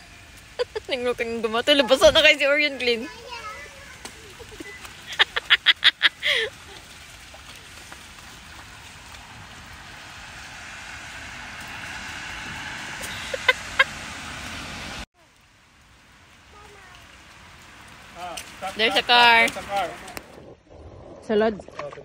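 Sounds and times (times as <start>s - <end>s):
water splashing in puddle: 0.0s - 20.5s, 21.4s - 22.0s
child laughing: 3.2s - 6.8s, 13.0s - 13.9s.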